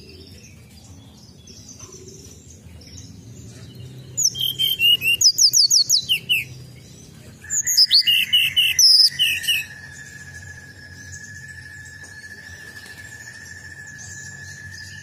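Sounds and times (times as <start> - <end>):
bird singing high whistled notes: 2.9 - 15.0
steady high tone: 9.1 - 15.0.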